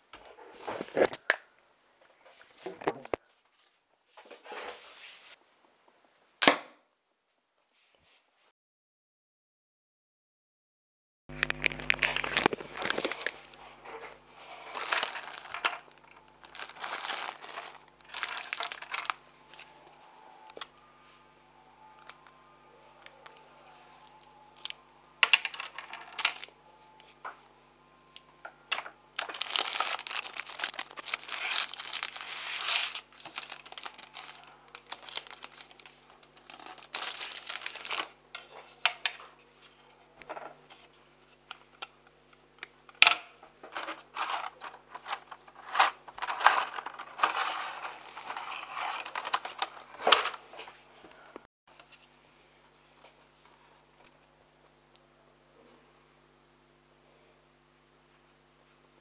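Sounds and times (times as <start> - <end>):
faint electrical hum: 0.0 - 8.5, 11.3 - 59.0
plastic packaging crinkling: 11.3 - 19.7, 24.6 - 26.5, 28.7 - 38.2, 43.8 - 50.5.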